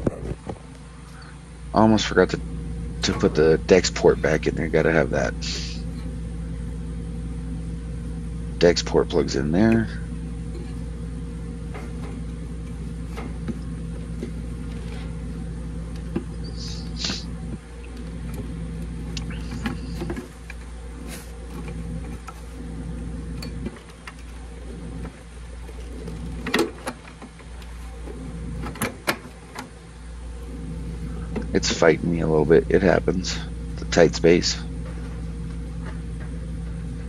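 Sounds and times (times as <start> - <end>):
low electrical hum: 0.0 - 37.0
wire connectors clicking: 15.9 - 29.8.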